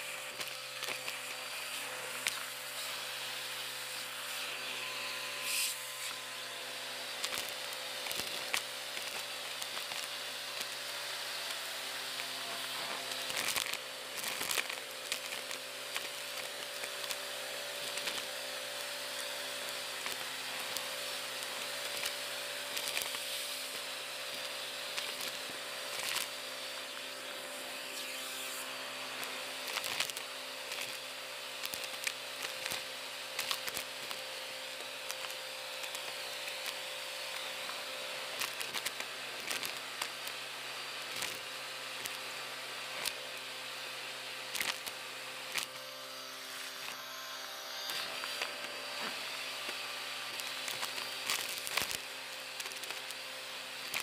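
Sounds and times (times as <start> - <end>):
vacuum cleaner running: 0.0 - 54.0
debris crackling and clicking: 44.6 - 44.9.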